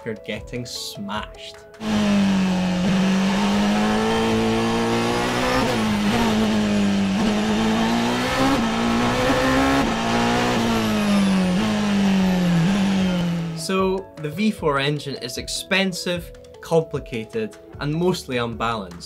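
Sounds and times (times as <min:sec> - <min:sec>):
racing car engine at speed: 0:01.8 - 0:13.6.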